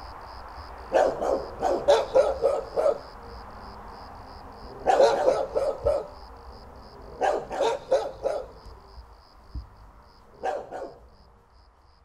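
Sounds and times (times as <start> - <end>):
crickets chirping: 0.0 - 12.0
dog barking: 0.9 - 3.2, 4.7 - 6.2, 7.0 - 8.7, 10.3 - 11.2.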